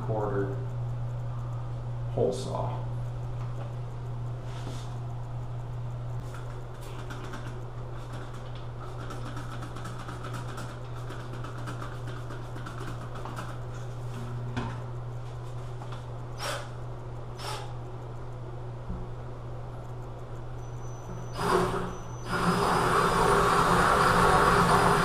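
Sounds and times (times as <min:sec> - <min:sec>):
drill hole saw cutting tile: 0:21.3 - 0:25.0.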